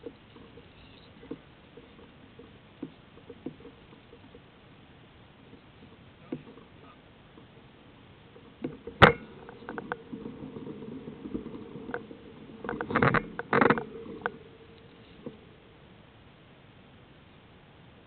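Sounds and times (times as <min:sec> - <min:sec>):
faint steady hum: 0:00.0 - 0:18.0
sharp knocks and rattles: 0:08.4 - 0:15.5.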